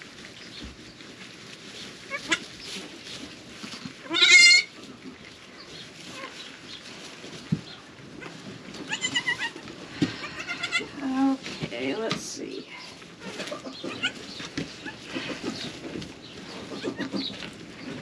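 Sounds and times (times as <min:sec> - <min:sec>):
goat kid bleating: 0:02.1 - 0:02.4, 0:04.0 - 0:04.7, 0:08.2 - 0:11.4, 0:13.2 - 0:15.4.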